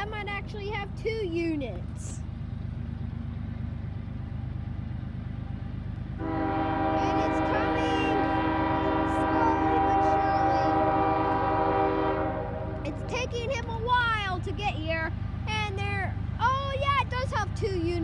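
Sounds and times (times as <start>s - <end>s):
locomotive air horn: 6.2s - 13.1s.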